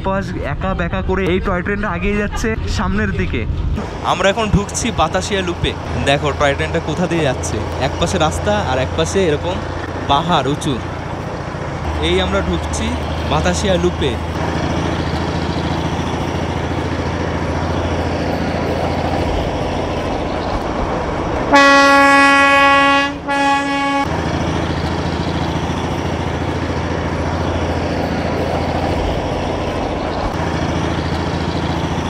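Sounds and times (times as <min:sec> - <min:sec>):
train running on track: 0:00.0 - 0:32.0
locomotive horn blasts: 0:21.5 - 0:24.2.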